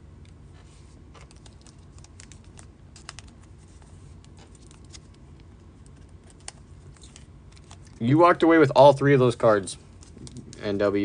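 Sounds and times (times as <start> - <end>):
faint low hum: 0.0 - 11.0
trading cards clicking in sleeves: 1.2 - 5.2, 5.8 - 8.0.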